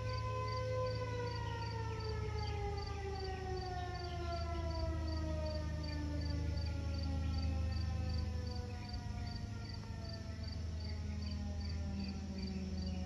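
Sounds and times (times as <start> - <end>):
warning sirens winding down: 0.0 - 13.0.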